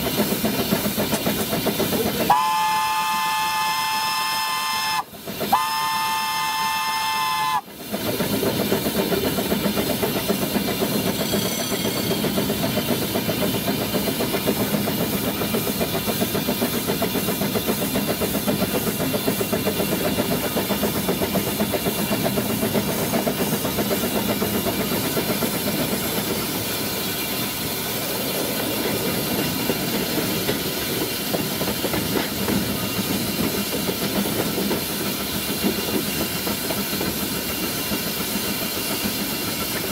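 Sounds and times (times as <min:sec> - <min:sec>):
steam hissing: 0:00.0 - 0:39.9
train wheels rattling: 0:00.0 - 0:39.9
steam whistle: 0:02.3 - 0:07.7.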